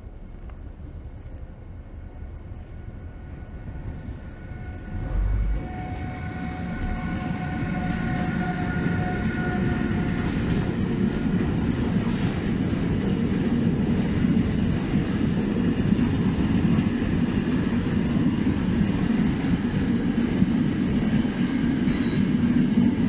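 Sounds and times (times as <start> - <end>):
electric locomotive motors whining: 2.6 - 12.9
low air buffet: 4.2 - 9.8.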